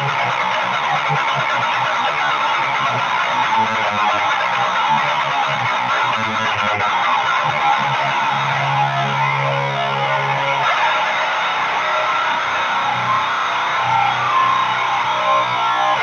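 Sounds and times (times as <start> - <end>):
distorted electric guitar riffing: 0.0 - 16.0.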